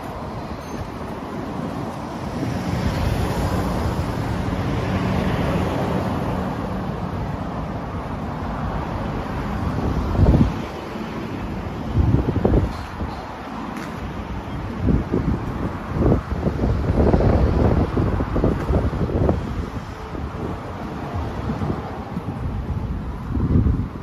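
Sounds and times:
wind buffeting microphone: 0:09.1 - 0:24.0.

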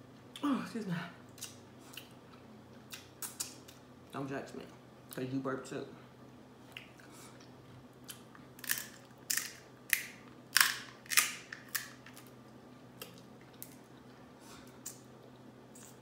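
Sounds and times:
crab shells cracking: 0:08.1 - 0:12.4.

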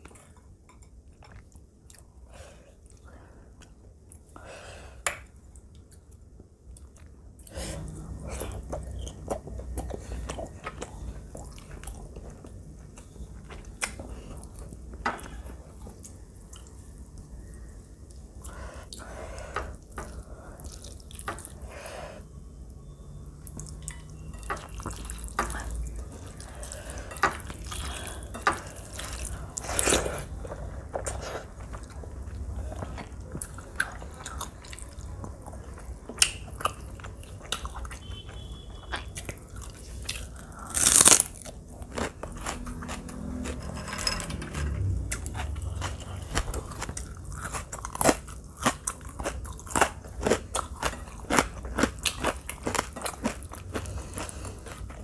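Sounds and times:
chewing and wet squishing: 0:05.6 - 0:15.0, 0:19.8 - 0:21.6, 0:23.4 - 0:43.6, 0:44.6 - 0:55.0.

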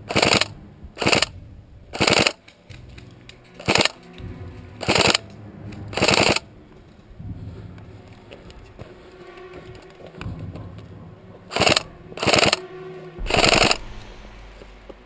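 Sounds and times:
airsoft rifle firing bursts: 0:00.1 - 0:01.3, 0:02.0 - 0:02.4, 0:03.6 - 0:04.0, 0:04.8 - 0:05.2, 0:06.0 - 0:06.4, 0:11.5 - 0:12.6, 0:13.3 - 0:13.8.

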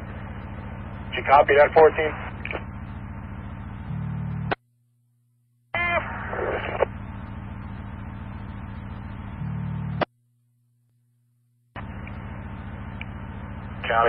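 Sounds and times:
radio transmission hiss: 0:00.0 - 0:03.0, 0:05.8 - 0:09.2, 0:11.8 - 0:14.0.

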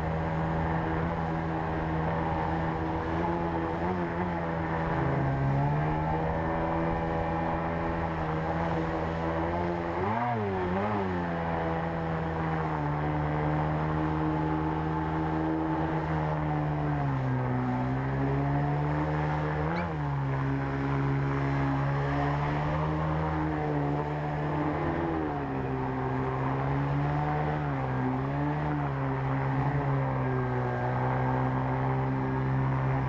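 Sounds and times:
outboard motor running: 0:00.0 - 0:33.0.

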